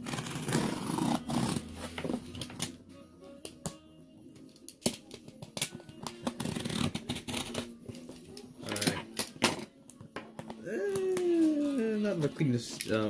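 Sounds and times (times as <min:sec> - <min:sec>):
faint background music: 0:00.0 - 0:13.0
tape scraping on cardboard: 0:06.2 - 0:07.7.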